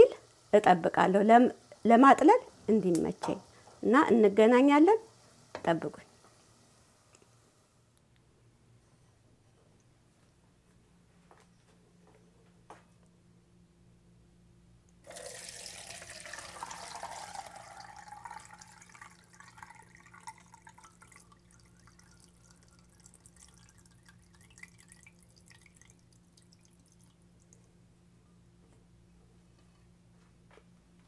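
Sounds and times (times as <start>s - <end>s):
liquid pouring and dripping: 15.0s - 27.7s.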